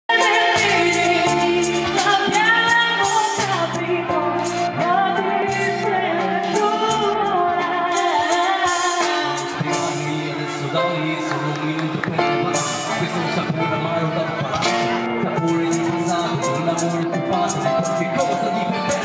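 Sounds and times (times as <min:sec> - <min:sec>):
woman singing: 0:00.1 - 0:09.6
amplified backing music: 0:00.1 - 0:19.0
man singing: 0:00.1 - 0:19.0.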